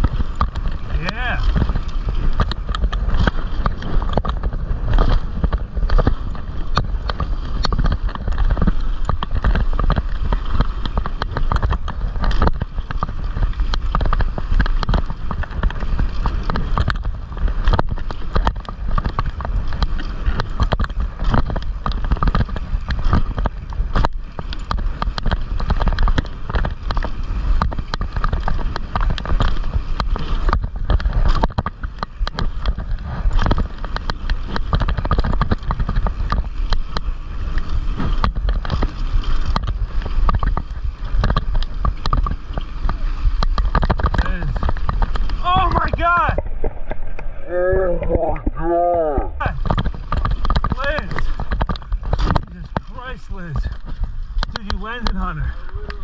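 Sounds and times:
tyres rumbling on dirt: 0.0s - 56.0s.

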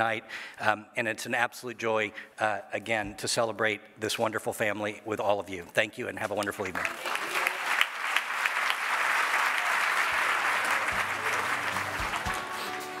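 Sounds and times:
audience applauding: 6.6s - 13.0s
music: 10.6s - 13.0s.

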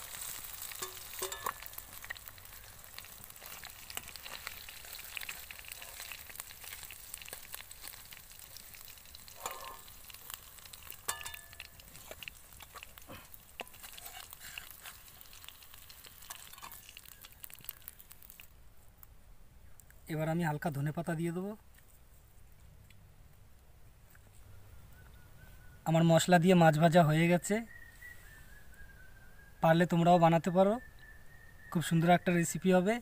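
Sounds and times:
oil sizzling around fish: 0.0s - 18.6s
metal spatula scraping pan: 13.6s - 15.1s.

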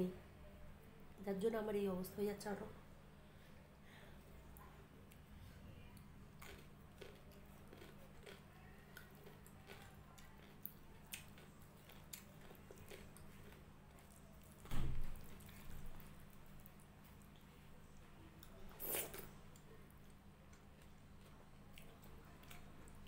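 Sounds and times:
chewing: 5.9s - 23.0s.

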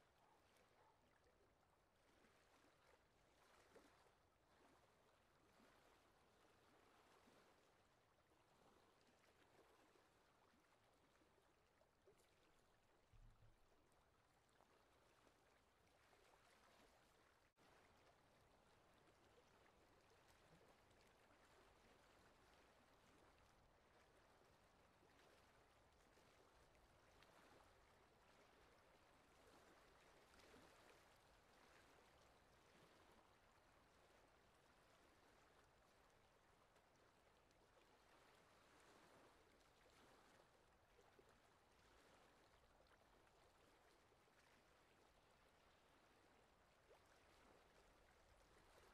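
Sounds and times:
shallow river flowing over stones: 0.0s - 48.9s.

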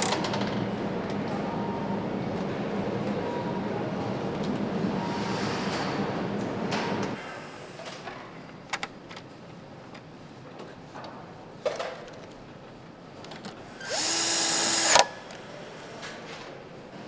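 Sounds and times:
machinery hum: 0.0s - 7.2s, 13.0s - 15.9s.

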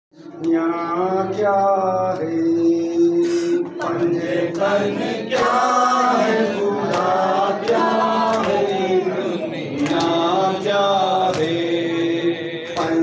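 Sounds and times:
man chanting a lament: 0.2s - 6.6s, 9.0s - 13.0s
voices joining in chant: 0.2s - 13.0s.

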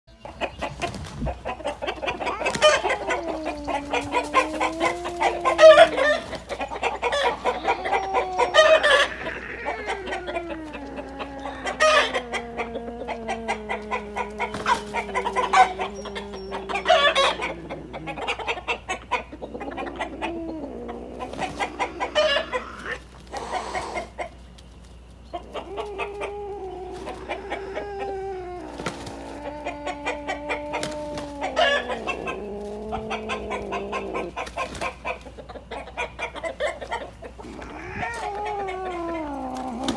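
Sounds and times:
rooster clucking and squawking: 0.1s - 39.9s
low wavering moan: 2.3s - 6.3s, 7.4s - 18.4s, 37.4s - 39.9s.

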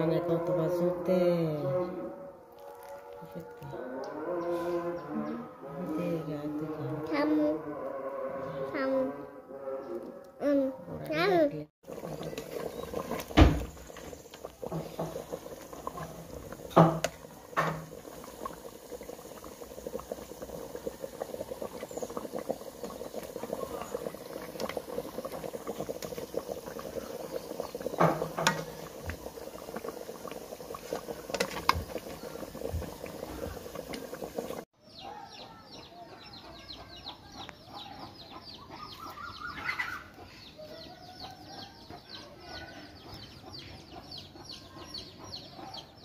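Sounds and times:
curry simmering crackle: 2.3s - 4.3s, 11.8s - 34.7s.

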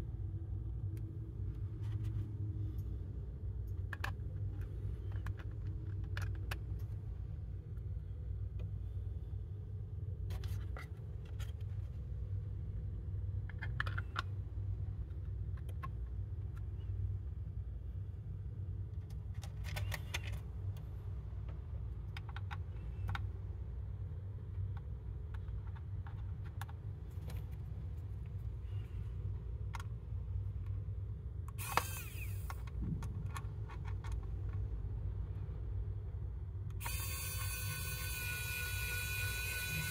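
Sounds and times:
steady low hum: 0.0s - 39.9s
plastic parts clicking together: 3.7s - 7.0s, 13.4s - 14.3s, 19.0s - 20.8s, 22.0s - 23.3s, 31.5s - 34.7s.

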